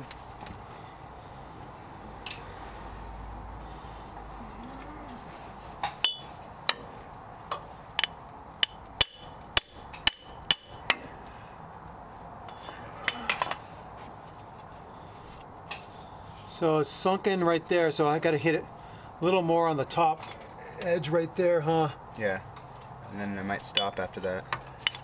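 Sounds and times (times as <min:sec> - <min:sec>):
hammer tapping metal: 0:06.0 - 0:06.9, 0:08.0 - 0:11.0.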